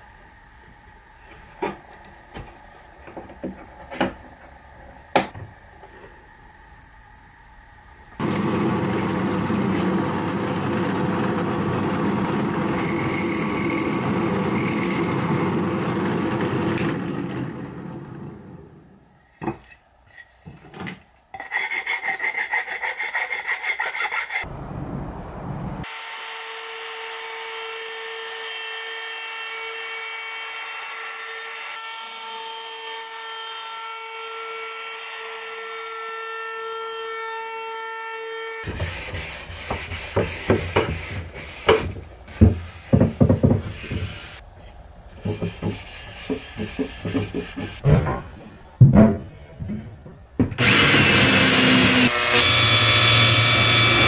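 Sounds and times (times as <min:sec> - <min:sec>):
electric router whining: 0:08.2 - 0:18.5, 0:50.6 - 0:54.0
drill press boring into wood: 0:10.8 - 0:17.1, 0:50.6 - 0:54.0
sanding strokes on wood: 0:21.4 - 0:24.5, 0:38.6 - 0:47.8
knocks on wood: 0:41.7 - 0:43.7.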